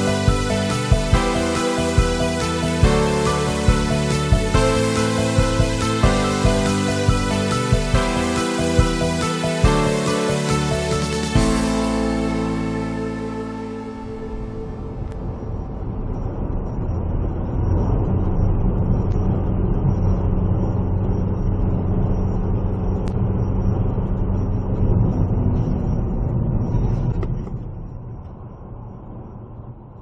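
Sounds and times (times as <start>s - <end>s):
vehicle engine hum: 0.0s - 30.0s.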